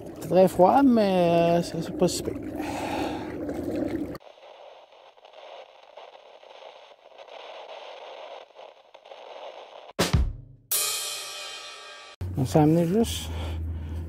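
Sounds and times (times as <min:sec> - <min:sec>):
static hiss: 0:04.2 - 0:10.0.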